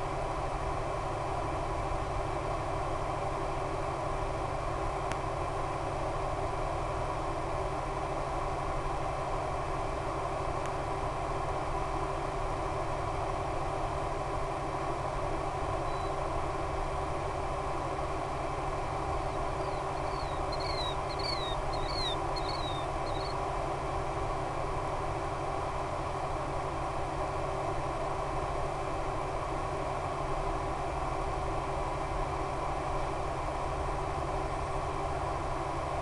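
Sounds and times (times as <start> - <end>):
steady hum and hiss: 0.0 - 36.0
bird chirping: 15.8 - 16.2, 19.2 - 23.4.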